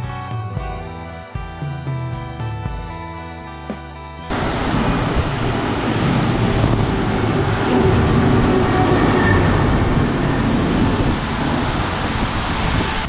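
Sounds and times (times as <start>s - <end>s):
car tyres on wet road: 4.3s - 13.0s.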